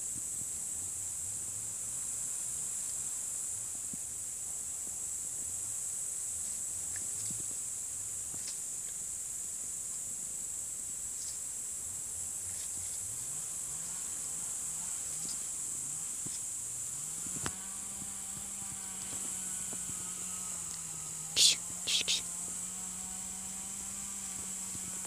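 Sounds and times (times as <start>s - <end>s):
high-pitched insect chirring: 21.3s - 22.4s.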